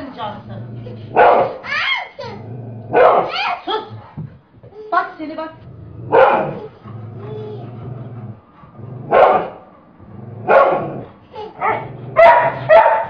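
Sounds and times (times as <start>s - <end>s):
dog barking: 1.1s - 1.7s, 2.9s - 3.6s, 6.1s - 6.7s, 9.1s - 9.6s, 10.4s - 11.0s, 11.6s - 13.0s.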